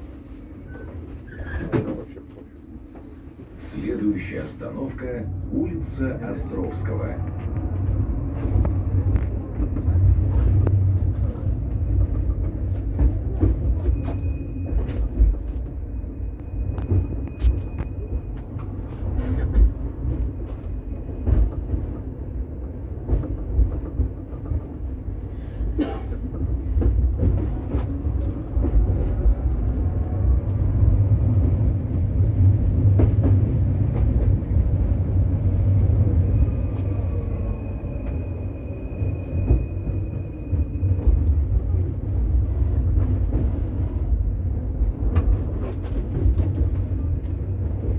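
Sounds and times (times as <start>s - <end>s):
tram rumbling on rails: 0.0s - 47.9s.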